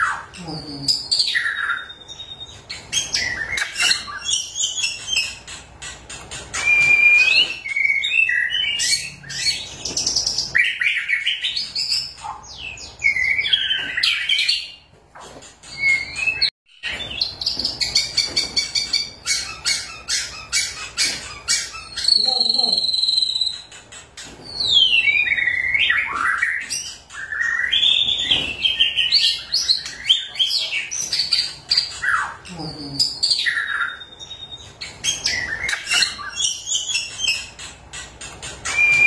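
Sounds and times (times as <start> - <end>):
bird singing whistles and chatter: 6.5 - 14.8, 15.7 - 23.8, 38.6 - 39.0.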